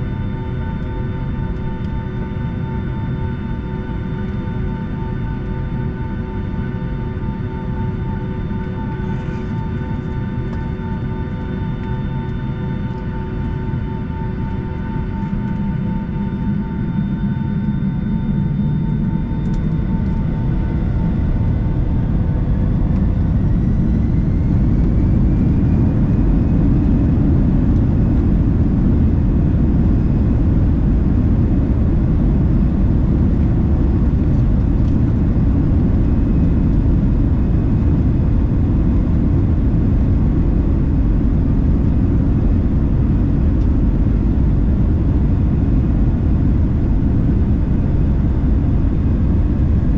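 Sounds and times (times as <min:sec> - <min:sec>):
jet engine roar: 0:00.0 - 0:49.9
jet engines spooling up: 0:13.2 - 0:49.9.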